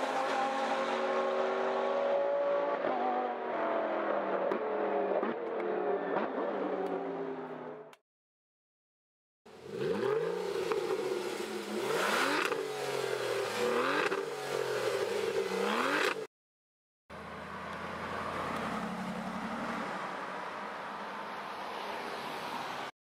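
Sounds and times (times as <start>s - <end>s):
car engine revving: 0.0s - 7.7s, 9.5s - 16.3s
engine and road noise: 0.0s - 8.0s, 9.5s - 16.3s, 17.1s - 23.0s.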